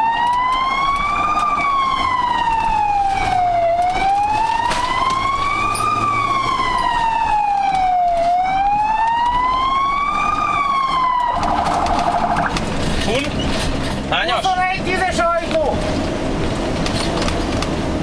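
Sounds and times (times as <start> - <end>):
ambulance siren wailing: 0.0 - 12.7
fast-pulsing siren tone: 8.4 - 12.6.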